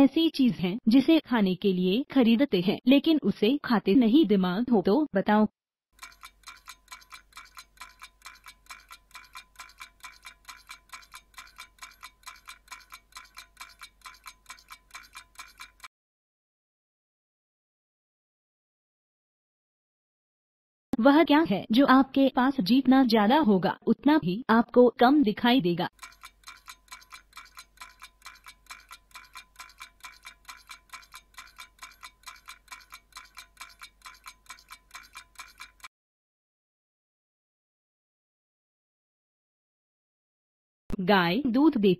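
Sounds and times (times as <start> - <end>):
fast metallic clock ticks: 6.0 - 15.9, 25.9 - 35.9.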